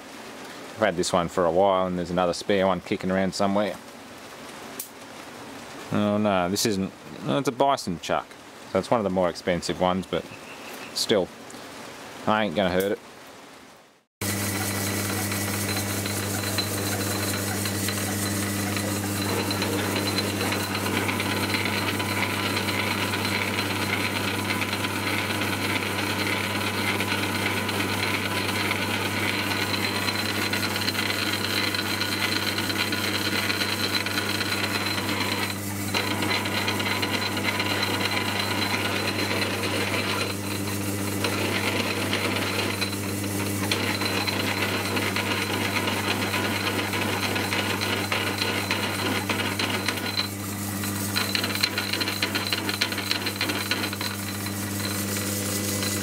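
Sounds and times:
drill cutting rattle: 14.2s - 56.0s
lathe motor hum: 14.2s - 56.0s.

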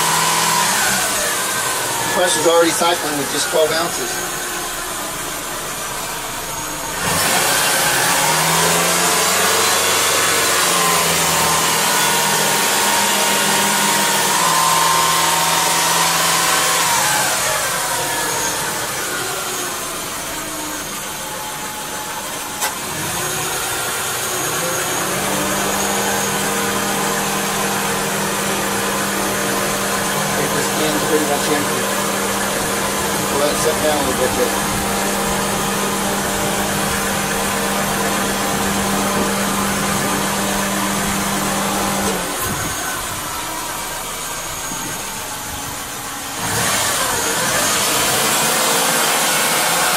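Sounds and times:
car engine idling: 0.0s - 49.9s.

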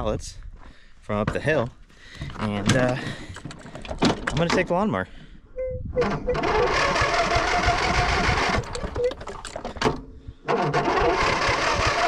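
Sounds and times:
lawnmower engine running: 6.0s - 9.2s, 10.4s - 12.0s.

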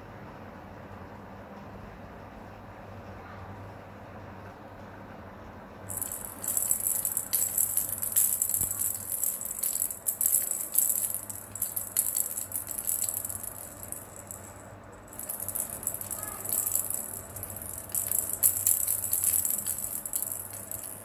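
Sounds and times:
plastic baby rattle shaken: 5.9s - 21.0s.

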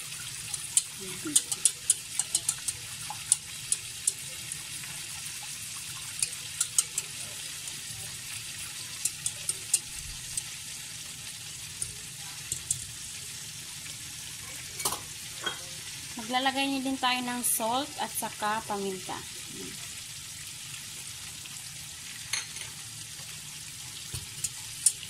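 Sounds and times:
gravy simmering hiss: 0.0s - 25.0s
whisk clicking in pot: 0.2s - 10.6s, 11.7s - 12.9s, 24.0s - 25.0s.

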